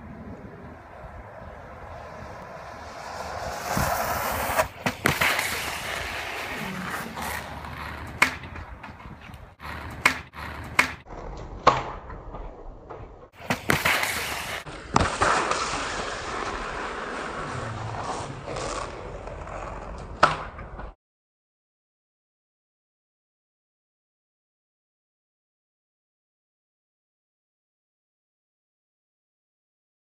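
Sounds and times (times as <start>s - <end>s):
longboard wheels rolling on asphalt: 0.0s - 21.0s.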